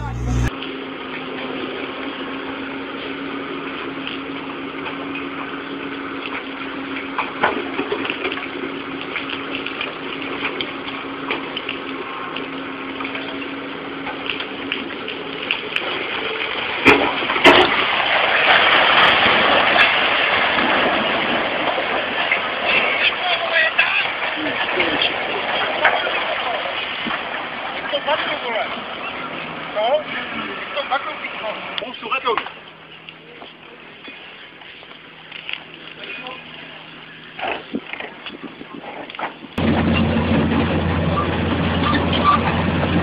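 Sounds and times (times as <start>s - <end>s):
steady rushing noise with hum: 0.0s - 0.5s
masonry and rubble falling: 14.0s - 29.1s.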